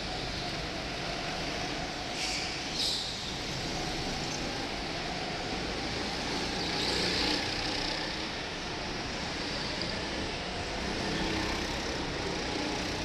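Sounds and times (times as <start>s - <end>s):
go-kart engines running: 0.0s - 13.0s.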